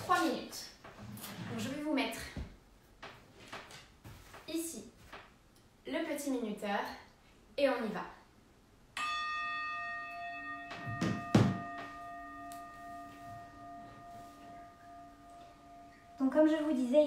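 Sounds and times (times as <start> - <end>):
bell chime ringing: 9.0 - 16.8.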